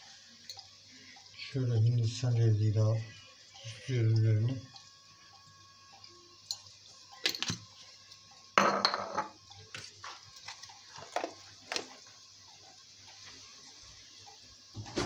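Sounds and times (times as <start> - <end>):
faint steady hum: 0.0 - 15.0
glass bowls clinking on tile: 8.6 - 9.4.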